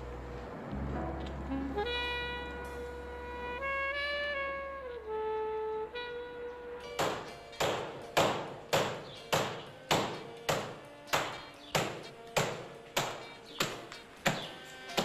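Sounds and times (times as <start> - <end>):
carpet beater whacks: 7.0 - 15.0.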